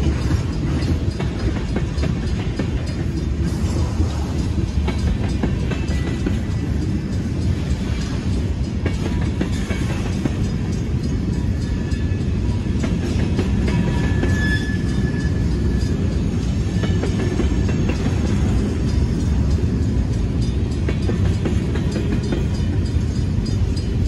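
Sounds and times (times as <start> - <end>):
train cars rumbling on rails: 0.0 - 24.0
wheels clicking over rail joints: 0.0 - 24.0
high wheel squeal: 13.7 - 17.2.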